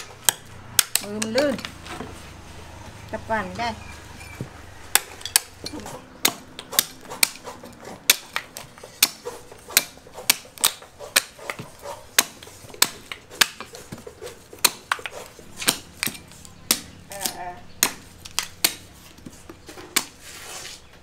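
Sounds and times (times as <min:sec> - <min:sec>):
knife chopping coconut husk: 0:04.9 - 0:20.2.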